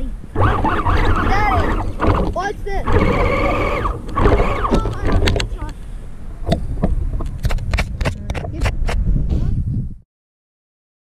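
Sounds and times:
electric toy truck motor whining: 0.4 - 5.1.

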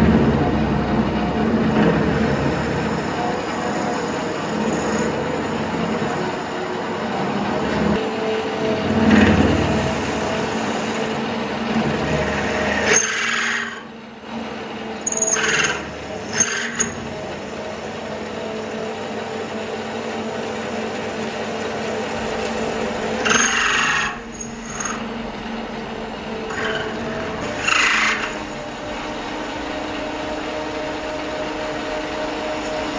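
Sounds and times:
metal lathe humming: 0.0 - 32.9
cutting tool scraping metal: 12.1 - 13.9, 15.0 - 17.1, 23.1 - 25.1, 26.4 - 28.8.

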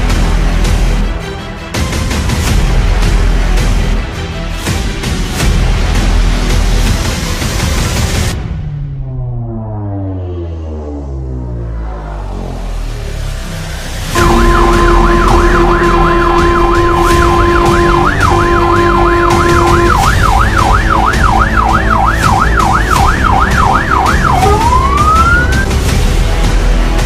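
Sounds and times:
truck engine and road rumble: 5.4 - 27.0
steady horn note: 14.1 - 21.0
fire engine siren: 14.1 - 25.8.

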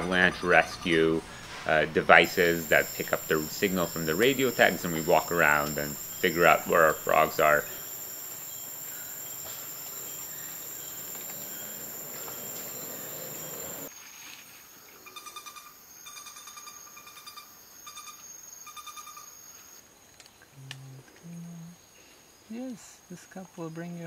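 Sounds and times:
rainforest insects droning: 0.0 - 24.0.

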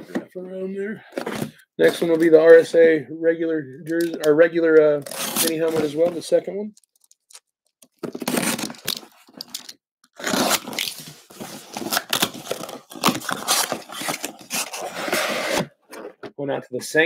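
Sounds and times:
cardboard tearing: 5.0 - 6.0, 8.0 - 15.7
cardboard box being opened: 8.0 - 9.6, 10.2 - 15.8
contents scraping against cardboard: 8.0 - 16.3.

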